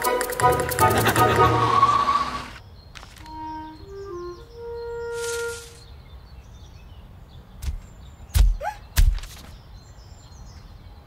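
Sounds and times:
held musical note: 0:03.2 - 0:05.8.

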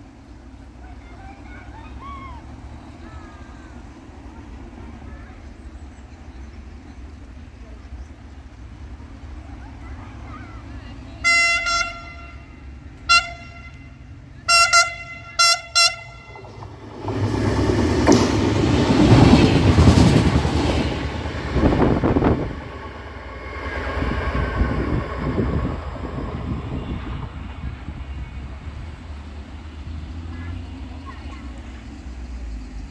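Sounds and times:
train passing at speed: 0:00.0 - 0:32.9
train horn toots: 0:11.2 - 0:16.6, 0:26.4 - 0:27.8.

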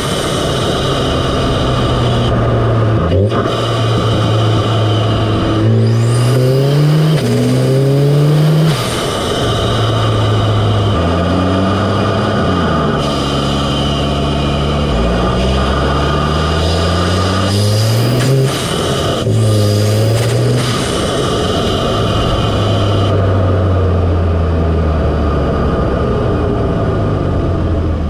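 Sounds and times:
car engine intake revving: 0:00.0 - 0:28.0.

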